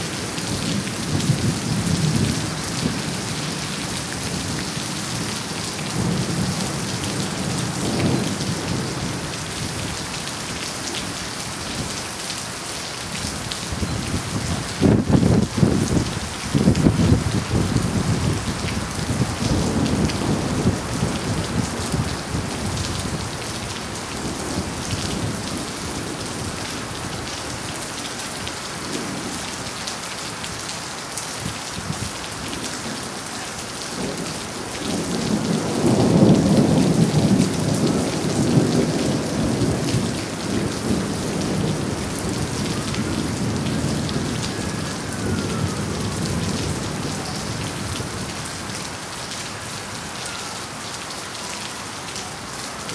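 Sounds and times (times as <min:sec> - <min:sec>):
steady rain: 0:00.0 - 0:52.9
rolling thunder: 0:13.8 - 0:23.4, 0:34.0 - 0:48.4.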